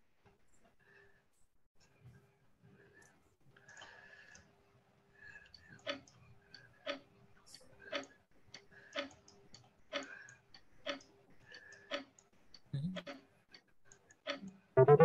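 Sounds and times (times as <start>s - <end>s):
countdown timer ticking: 14.8s - 15.0s.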